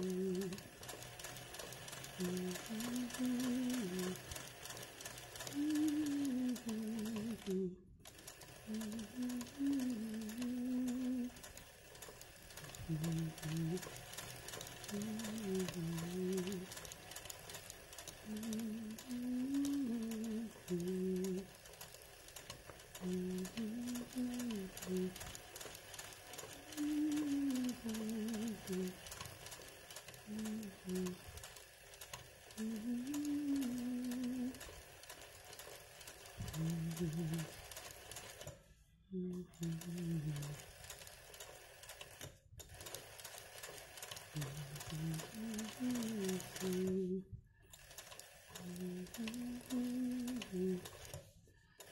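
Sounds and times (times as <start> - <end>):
woman humming: 0.0 - 1.0, 2.1 - 4.4, 5.4 - 7.9, 8.6 - 11.5, 12.6 - 14.0, 14.8 - 16.9, 18.1 - 21.6, 23.0 - 25.4, 26.3 - 29.1, 30.2 - 31.3, 32.5 - 34.8, 36.4 - 37.6, 39.0 - 40.7, 44.4 - 47.4, 48.5 - 51.1
sewing machine needle ticking: 0.0 - 38.7, 39.3 - 51.9.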